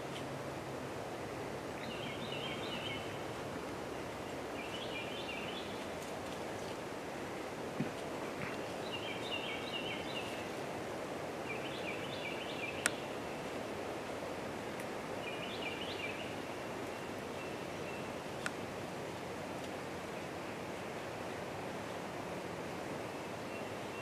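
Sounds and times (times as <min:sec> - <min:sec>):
steady background hiss: 0:00.0 - 0:24.0
faint clicks: 0:12.8 - 0:13.0, 0:18.4 - 0:18.6.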